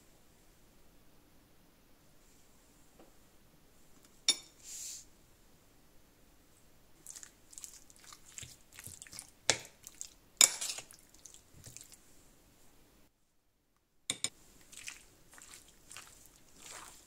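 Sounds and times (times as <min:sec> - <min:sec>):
wet squishing of meat: 0:07.0 - 0:12.0, 0:14.4 - 0:17.0.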